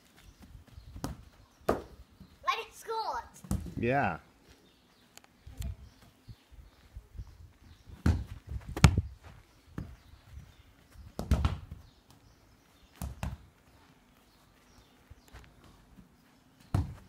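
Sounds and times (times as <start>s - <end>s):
football kicked dull thuds: 0.9s - 2.0s, 3.4s - 3.8s, 8.0s - 9.1s, 11.1s - 12.2s, 13.0s - 13.4s, 16.7s - 17.0s.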